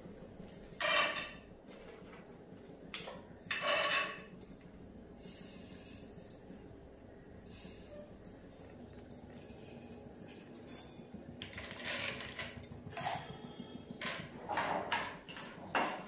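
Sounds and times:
peanuts rattling into a pan: 0:11.4 - 0:12.5.

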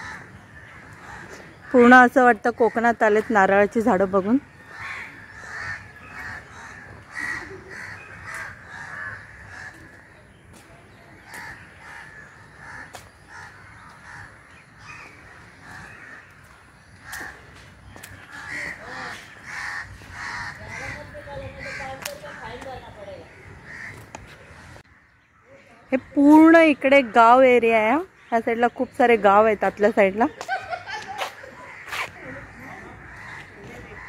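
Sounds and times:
birds calling: 0:00.0 - 0:34.0.

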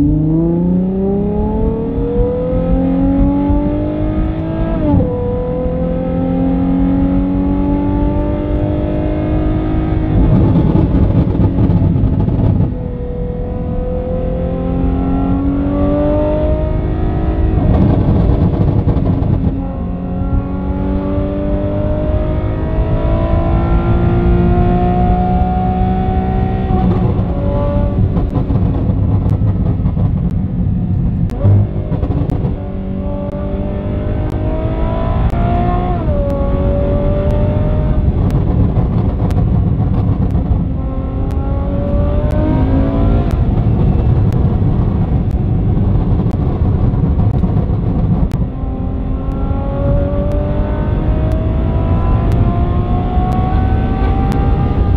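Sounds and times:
car engine accelerating: 0:00.0 - 0:54.9.

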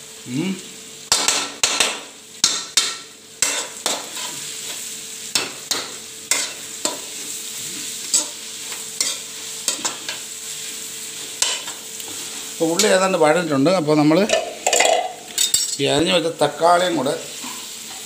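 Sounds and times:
onions sizzling: 0:00.0 - 0:18.0
steel spoon scraping a pan: 0:03.4 - 0:04.8, 0:05.4 - 0:07.3, 0:08.0 - 0:10.2, 0:11.2 - 0:13.0, 0:17.3 - 0:18.0.

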